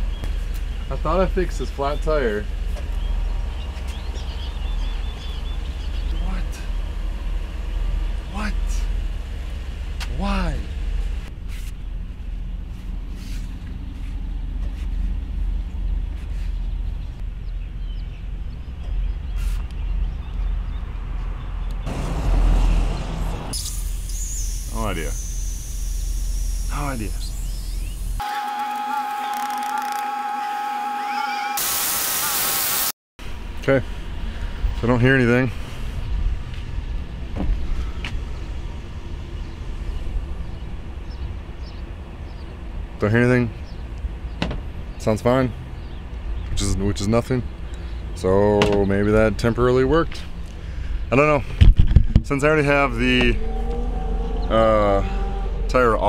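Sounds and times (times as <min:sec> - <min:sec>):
low outdoor rumble: 0:00.0 - 0:28.2, 0:33.2 - 0:56.0
falling squeak: 0:52.8 - 0:56.0.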